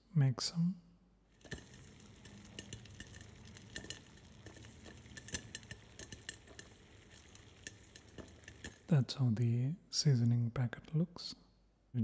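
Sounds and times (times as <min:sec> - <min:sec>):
popcorn popping: 0:01.3 - 0:09.0.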